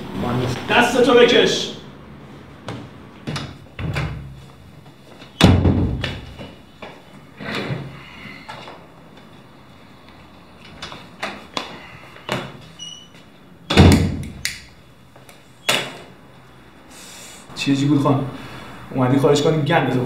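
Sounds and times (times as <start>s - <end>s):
loud knock: 5.4s - 6.3s, 13.7s - 14.4s.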